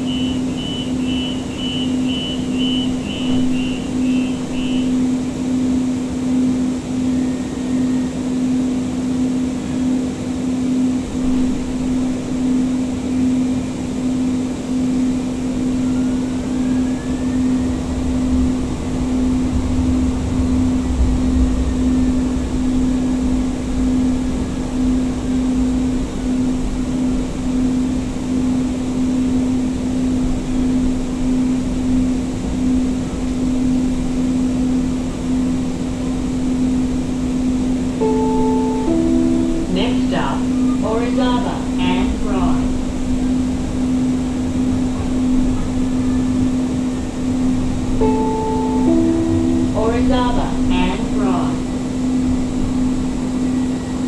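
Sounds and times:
faint traction motor whine: 0:00.0 - 0:54.0
steady train hum: 0:00.0 - 0:54.0
deep rumble: 0:15.2 - 0:54.0.

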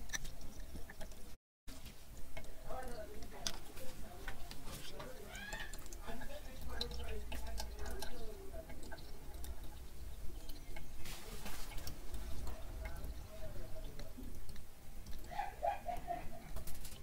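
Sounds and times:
liquid dripping into plastic jug: 0:02.1 - 0:17.0.

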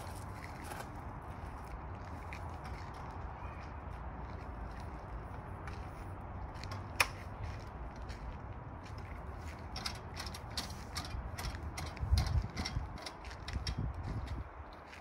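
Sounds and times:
metal awning arm clicks and rattles: 0:06.7 - 0:07.2, 0:09.6 - 0:14.4.

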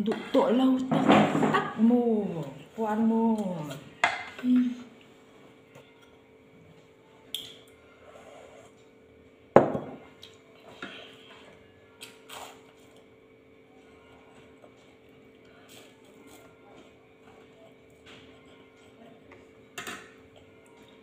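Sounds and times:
dishes clinking and knocking: 0:00.8 - 0:01.8, 0:09.5 - 0:10.1, 0:19.7 - 0:20.2.

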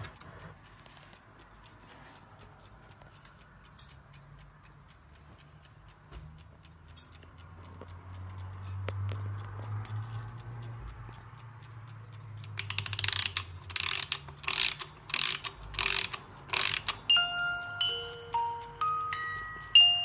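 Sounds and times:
clock ticking faintly: 0:00.0 - 0:20.0
loud ratcheting winding strokes: 0:12.5 - 0:17.1
music box plucking notes: 0:16.7 - 0:20.0.

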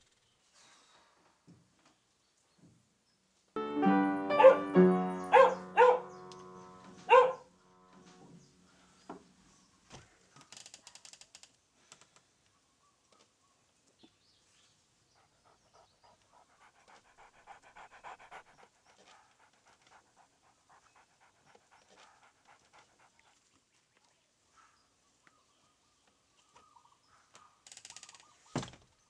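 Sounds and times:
dog panting: 0:04.5 - 0:07.4, 0:15.1 - 0:23.7.

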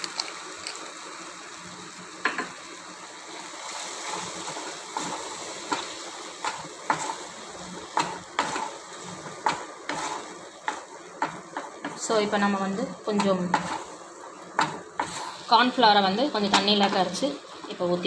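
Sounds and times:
sauce sizzling and bubbling: 0:00.0 - 0:18.0
wooden spatula scraping a pan: 0:03.6 - 0:15.8.

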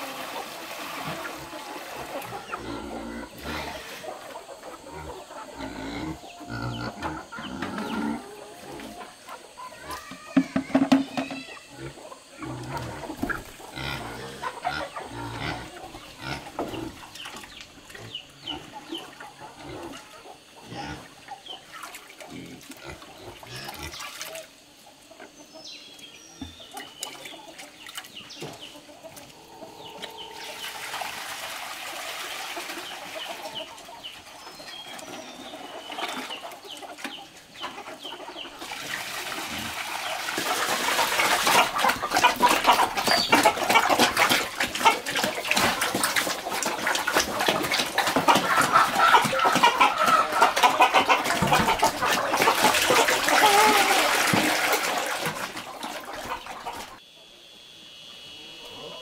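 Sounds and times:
water pouring and splashing: 0:00.0 - 0:02.5, 0:30.4 - 0:34.0, 0:38.5 - 0:57.0
chickens clucking: 0:00.0 - 0:59.0.

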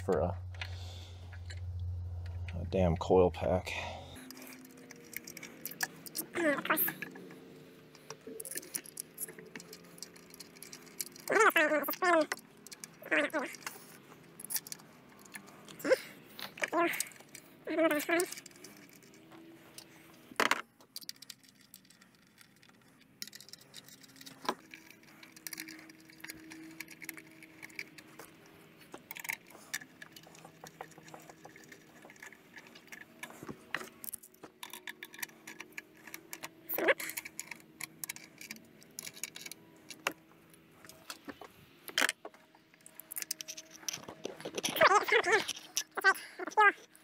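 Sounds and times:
hand tools clicking and clinking: 0:03.8 - 0:47.0.

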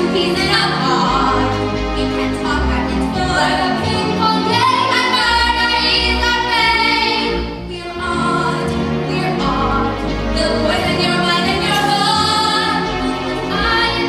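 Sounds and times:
instrumental accompaniment: 0:00.0 - 0:14.0
women singing together: 0:07.9 - 0:14.0.

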